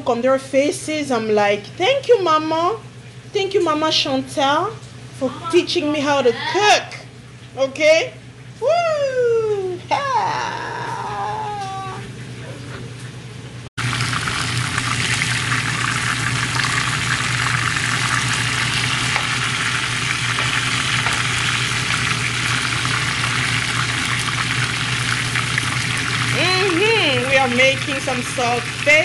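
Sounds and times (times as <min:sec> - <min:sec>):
low steady hum: 0:00.0 - 0:29.0
fish frying in oil: 0:13.8 - 0:29.0.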